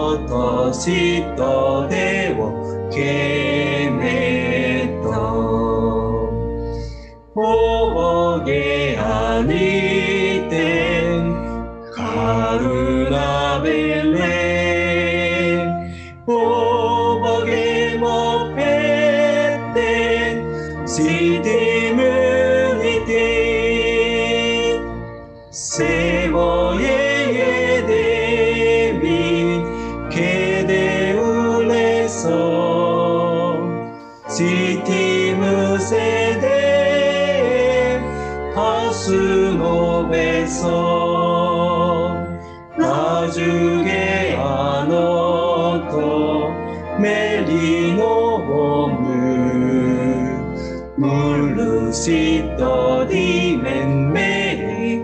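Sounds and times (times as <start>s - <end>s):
held accompaniment chords: 0.0s - 55.0s
man and woman singing a hymn: 0.0s - 55.0s.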